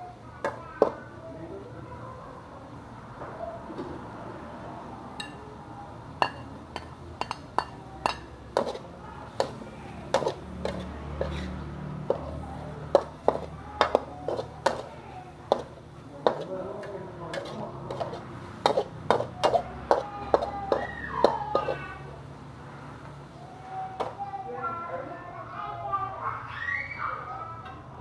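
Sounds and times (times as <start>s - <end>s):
metal spatula clanking on wok: 6.2s - 8.8s, 13.0s - 14.9s, 15.5s - 16.5s, 17.3s - 21.8s.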